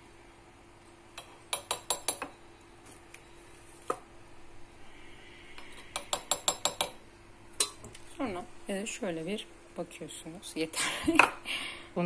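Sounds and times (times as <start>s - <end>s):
metal spoon clinking on pot: 5.9s - 7.0s.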